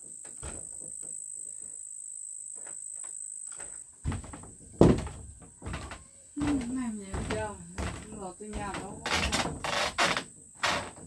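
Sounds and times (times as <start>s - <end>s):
insects chirring: 0.0s - 11.0s
loud thumps: 4.0s - 11.0s.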